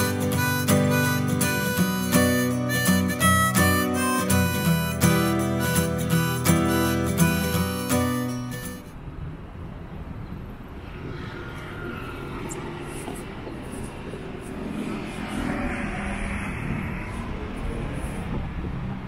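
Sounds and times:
strummed guitar: 0:00.0 - 0:08.9
urban street rumble: 0:00.0 - 0:19.0.

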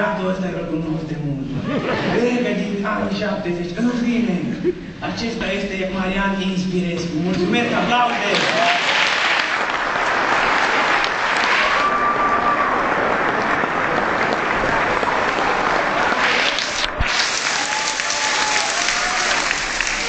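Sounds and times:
audience clapping: 0:08.2 - 0:20.0.

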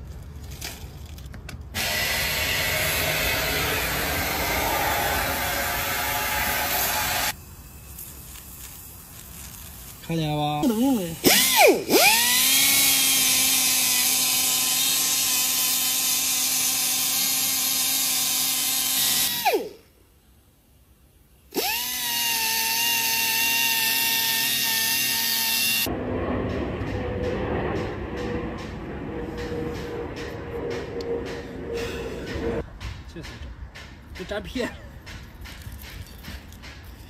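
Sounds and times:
pneumatic buffer whining: 0:01.8 - 0:07.4, 0:11.2 - 0:19.8, 0:21.5 - 0:25.9.

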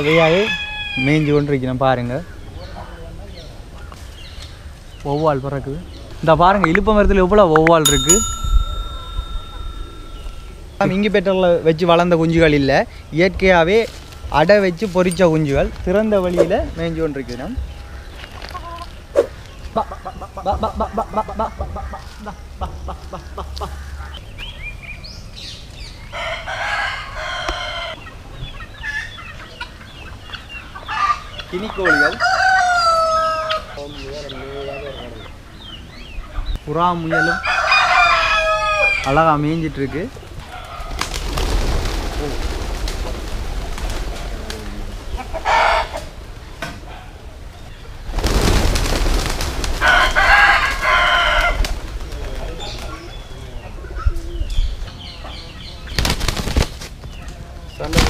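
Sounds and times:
rooster crowing: 0:00.0 - 0:01.4, 0:26.1 - 0:28.0, 0:31.8 - 0:33.7, 0:37.1 - 0:39.1, 0:49.8 - 0:51.6.

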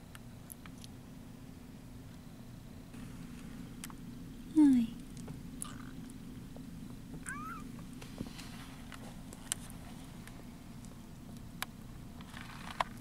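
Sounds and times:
kitten purring: 0:07.1 - 0:07.8.

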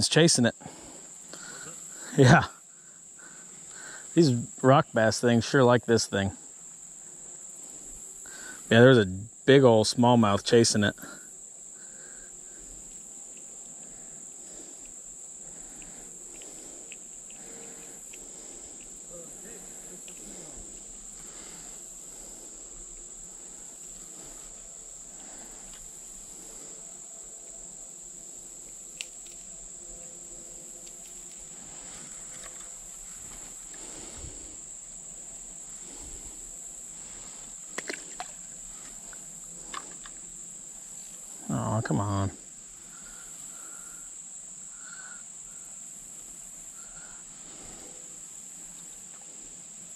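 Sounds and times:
insects trilling: 0:00.0 - 0:49.9
faint clicks: 0:12.8 - 0:19.0, 0:20.0 - 0:21.4.

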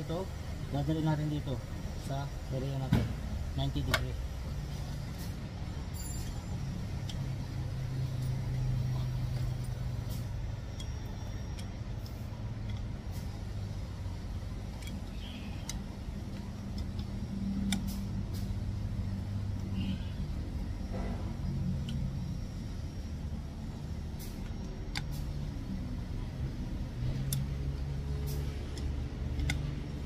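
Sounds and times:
low mechanical hum: 0:00.0 - 0:30.0
hand tool clicks: 0:28.2 - 0:30.0.

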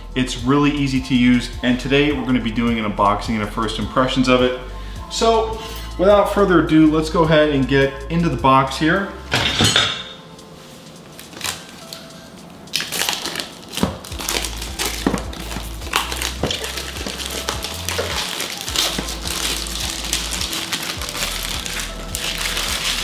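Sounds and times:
plastic shrink-wrap rustling: 0:11.1 - 0:23.0.

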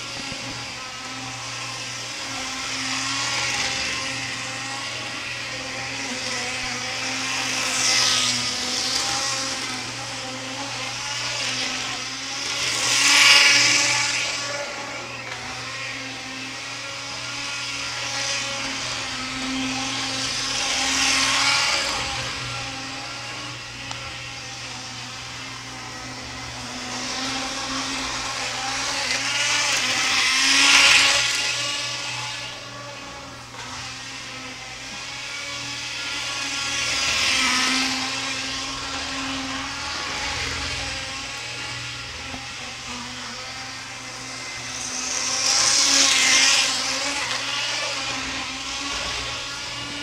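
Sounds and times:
wheels rolling on track: 0:00.0 - 0:16.6, 0:17.2 - 0:50.0
model train motor whine: 0:00.0 - 0:50.0.

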